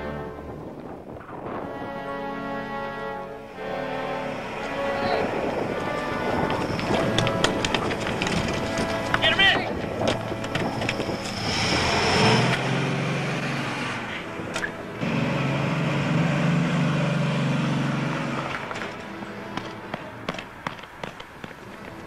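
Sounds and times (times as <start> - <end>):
car engine running: 5.8 - 20.4.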